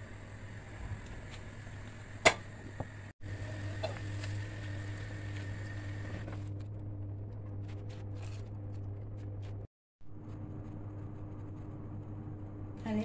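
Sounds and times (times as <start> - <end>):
gas stove hum: 0.0 - 13.0
water boiling in a pot: 2.8 - 6.4.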